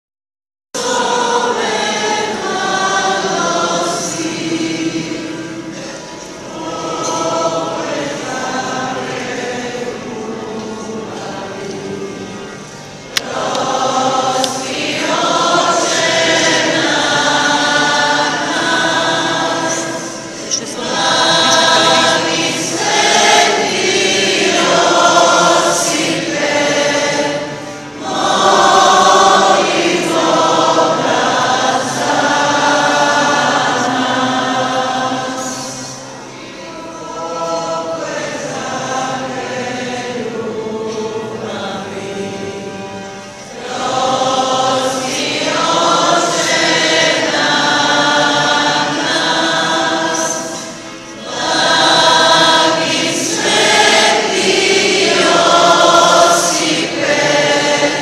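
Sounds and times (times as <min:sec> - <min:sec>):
congregation singing a hymn: 0:00.8 - 0:58.0.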